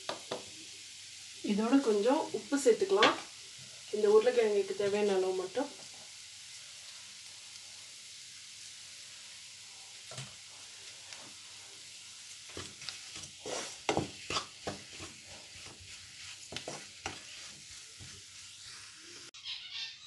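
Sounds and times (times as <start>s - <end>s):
faint sizzle of frying: 0.0s - 19.9s
wooden spatula scraping pan: 12.5s - 19.4s.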